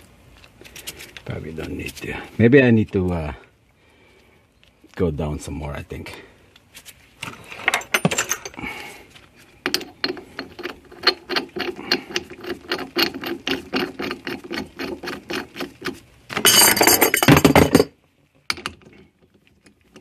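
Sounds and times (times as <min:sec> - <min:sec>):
handling clatter: 0:07.2 - 0:08.6, 0:09.6 - 0:19.0.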